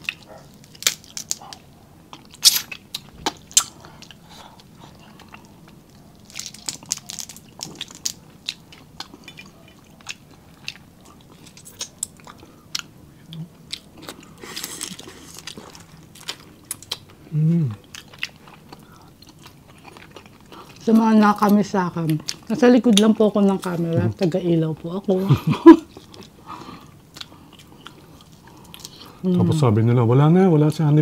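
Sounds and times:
crab shell cracking: 0.0s - 4.1s, 6.2s - 9.4s
wet chewing and lip smacks: 0.0s - 17.2s, 17.8s - 23.7s, 25.9s - 29.2s.

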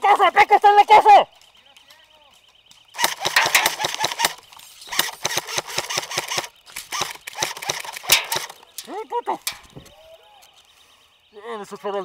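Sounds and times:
faint electronic alarm beeping: 0.2s - 12.0s
airsoft gun firing full-auto: 2.9s - 8.7s.

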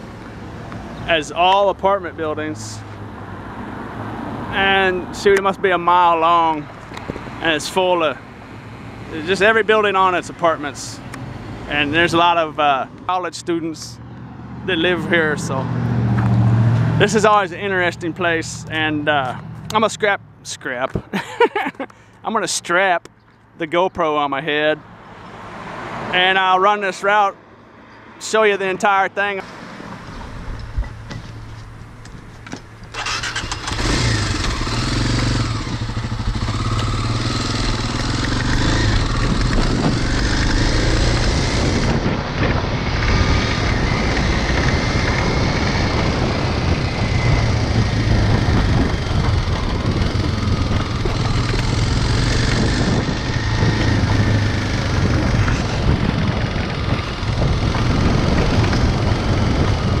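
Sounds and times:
motorcycle engine starting and revving: 32.5s - 60.0s.

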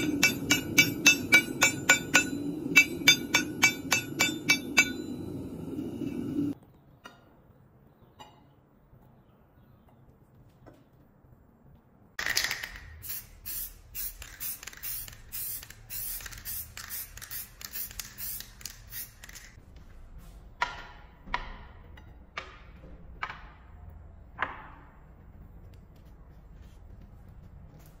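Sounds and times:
spray paint can hissing bursts: 12.8s - 19.6s.

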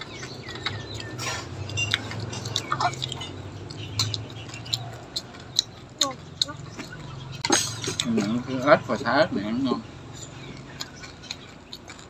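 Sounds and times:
utensils clinking against steel bowls: 0.0s - 9.4s
chewing: 0.0s - 12.0s.

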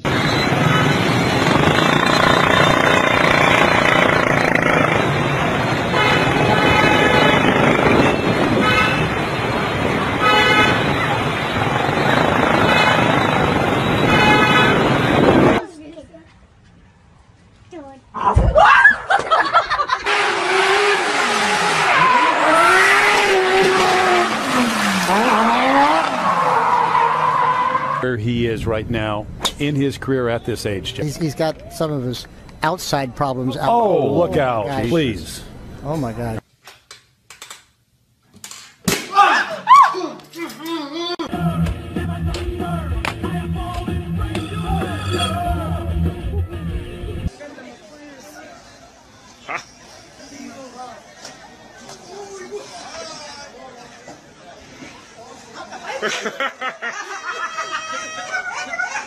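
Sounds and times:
motorcycle engines running: 0.0s - 8.6s, 10.7s - 13.9s
horns honking: 0.0s - 15.6s, 20.0s - 28.2s, 44.2s - 45.7s
tyre and road noise: 0.0s - 36.5s, 38.4s - 48.0s
rally car engine revving: 20.1s - 28.0s.

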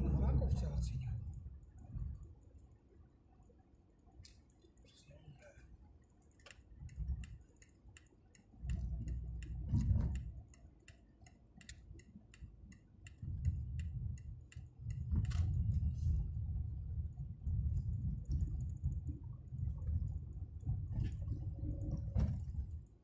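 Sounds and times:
road and engine rumble: 0.0s - 23.0s
light quick ticking: 5.6s - 23.0s.

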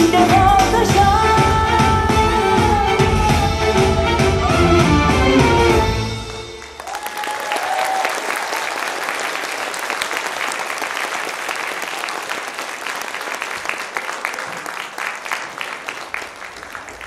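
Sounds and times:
audience applauding: 6.1s - 17.0s.

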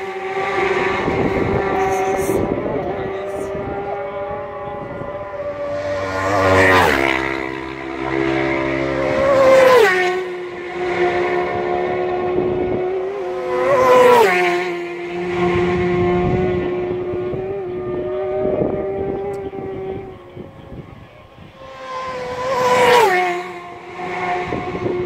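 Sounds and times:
motorcycles passing at speed: 0.0s - 25.0s
steady engine drone: 0.0s - 25.0s.

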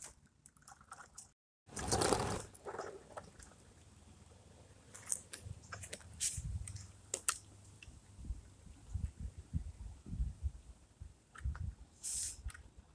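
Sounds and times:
toy scuffing on pavement: 4.9s - 7.3s.

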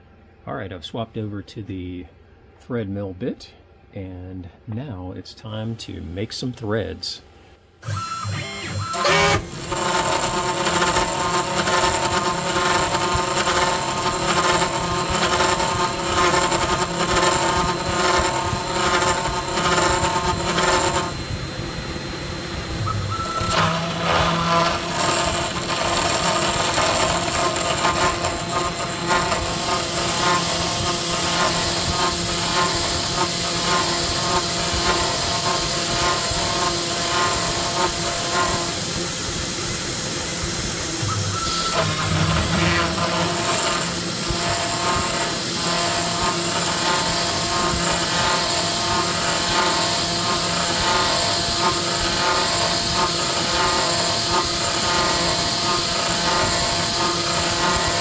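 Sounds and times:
router spindle whine: 7.8s - 58.0s
cutting hiss: 22.9s - 58.0s.

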